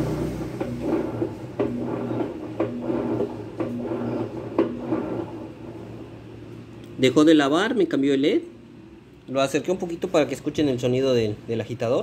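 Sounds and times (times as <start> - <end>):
washing machine motor agitating: 0.0 - 6.2.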